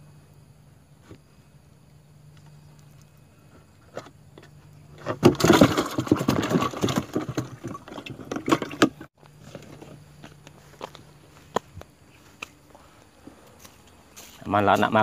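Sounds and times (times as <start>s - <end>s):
rustling and scraping handling noise: 3.4s - 15.0s.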